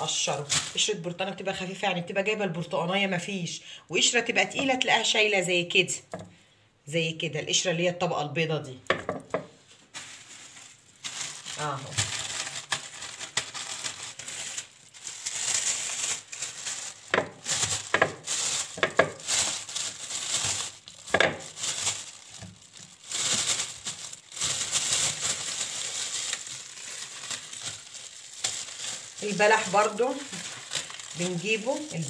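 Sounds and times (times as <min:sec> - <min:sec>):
plastic bag crinkling: 0:00.0 - 0:01.0, 0:09.1 - 0:32.0.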